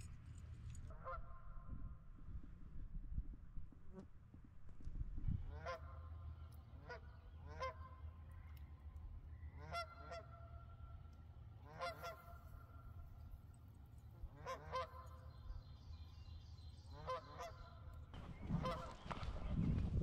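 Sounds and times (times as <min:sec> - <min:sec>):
geese honking: 0:06.8 - 0:08.0, 0:09.6 - 0:10.7, 0:11.6 - 0:13.0, 0:14.2 - 0:15.3, 0:16.9 - 0:19.2.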